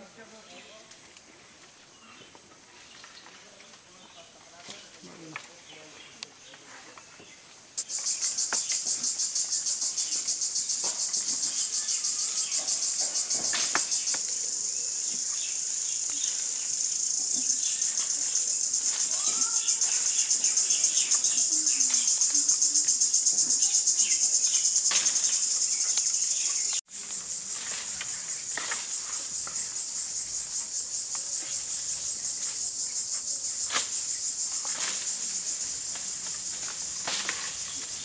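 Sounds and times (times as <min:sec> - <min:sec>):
insects droning high-pitched: 0:07.7 - 0:38.0.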